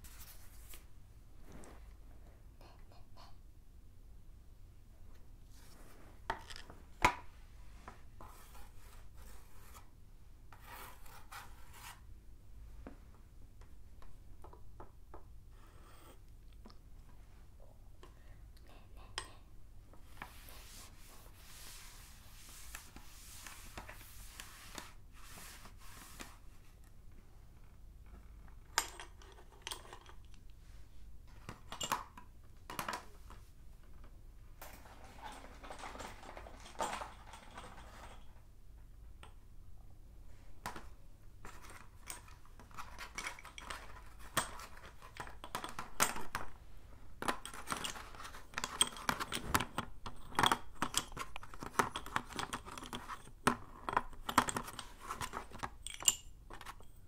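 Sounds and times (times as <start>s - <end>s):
chalk sticks clinking: 50.1s - 57.0s.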